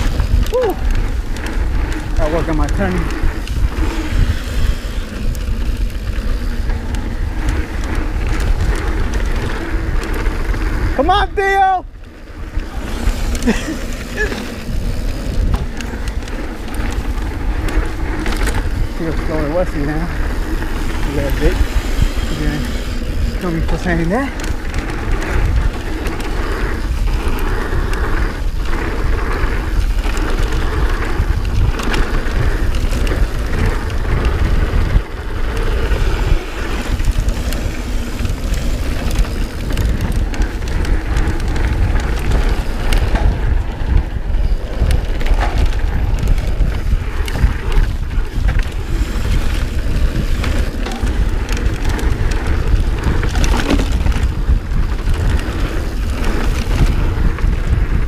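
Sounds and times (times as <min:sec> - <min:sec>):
bike rattling: 0:00.0 - 0:58.0
wind buffeting microphone: 0:00.0 - 0:58.0
tyres crunching on gravel: 0:11.9 - 0:58.0.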